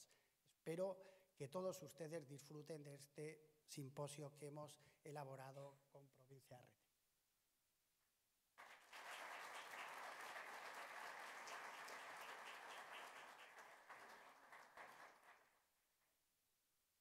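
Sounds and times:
audience applauding: 8.6 - 15.6.

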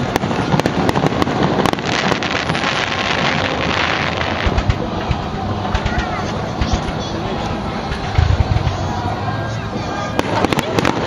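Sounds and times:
deep firework booms: 0.0 - 5.3
fireworks cracking: 0.0 - 11.0.

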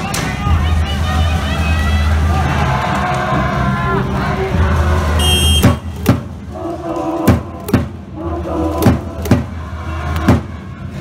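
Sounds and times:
crowd chanting in rhythm: 1.7 - 11.0
high whistle: 5.2 - 5.9
loud drum beats in pairs: 5.6 - 6.3.

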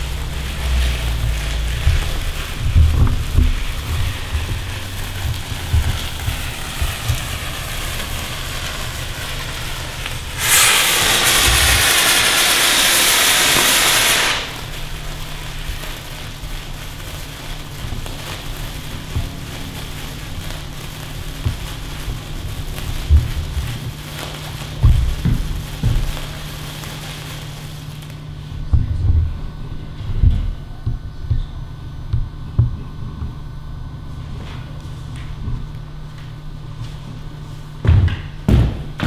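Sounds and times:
loud hissing spray: 0.0 - 28.1
firework fizzing: 0.0 - 28.4.

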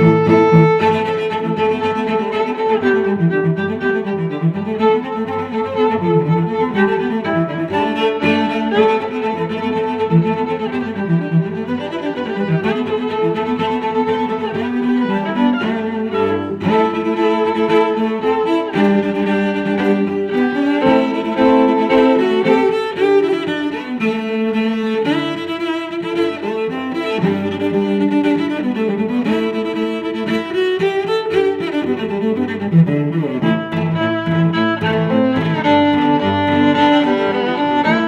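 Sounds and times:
bowed strings music: 0.0 - 38.0.

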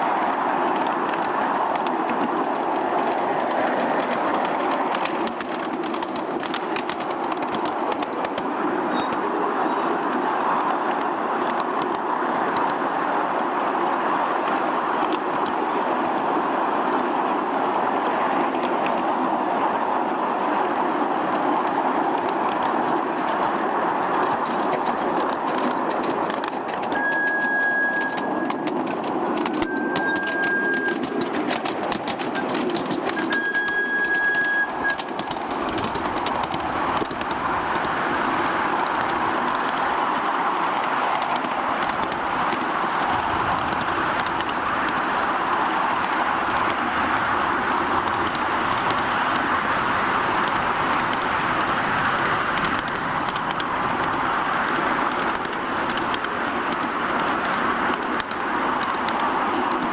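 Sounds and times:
miniature steam locomotive running: 0.0 - 59.9
steam whistle blasts: 27.0 - 28.5, 33.2 - 35.0.

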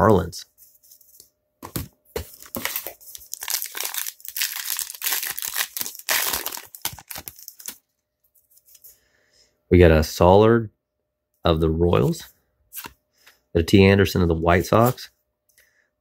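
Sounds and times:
wrapper tearing and crinkling: 2.5 - 7.8.

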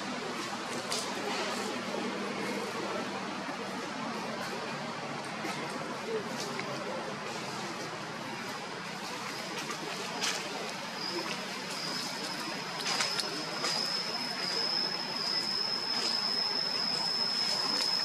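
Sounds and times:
steady high-pitched tone: 10.2 - 18.0.

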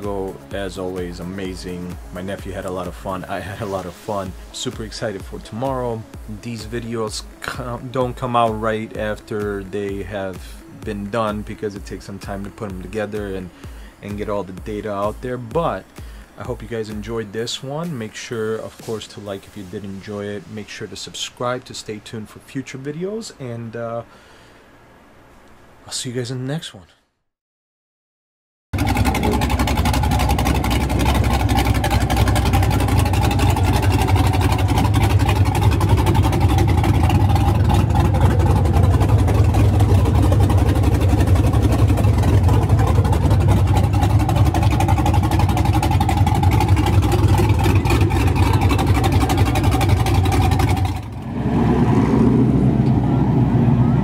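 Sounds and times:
engine running loudly: 28.8 - 54.0
pickup truck engine pulling away: 28.8 - 54.0.

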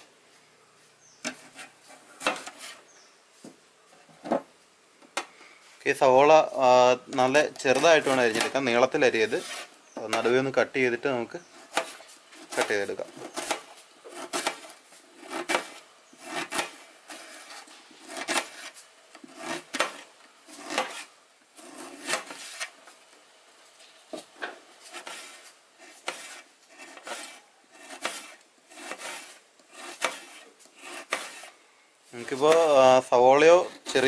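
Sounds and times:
knife chopping onion on metal: 1.2 - 2.8, 7.2 - 10.6, 11.4 - 22.7, 24.2 - 31.6, 32.3 - 32.9
blade scraping through onion: 1.2 - 2.9, 7.2 - 10.6, 11.4 - 22.8, 24.2 - 31.6.

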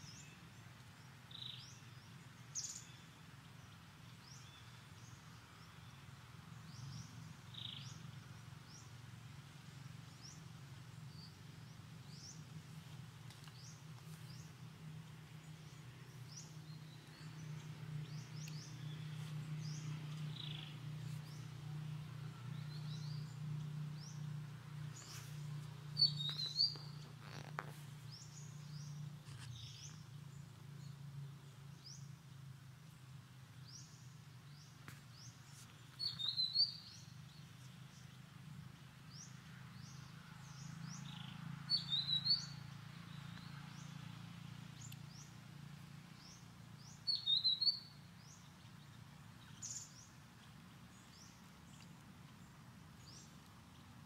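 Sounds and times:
low steady hum: 0.0 - 41.7
small birds chirping: 0.0 - 54.0.

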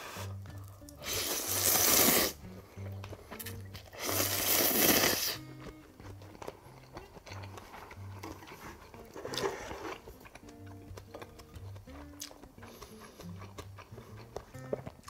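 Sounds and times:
person slurping noodles: 0.0 - 0.4, 1.0 - 5.5, 7.0 - 10.2
soft background music: 0.0 - 15.0.

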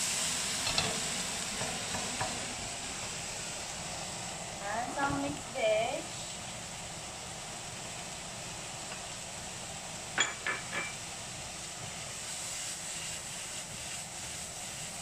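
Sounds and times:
food sizzling in a frying pan: 0.0 - 15.0.

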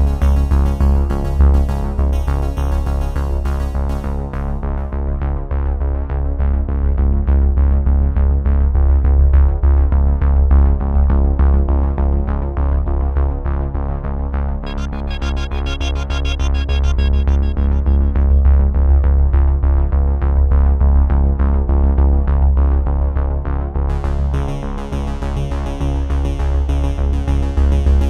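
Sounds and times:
background music with steady beat: 0.0 - 5.4, 14.6 - 19.8.

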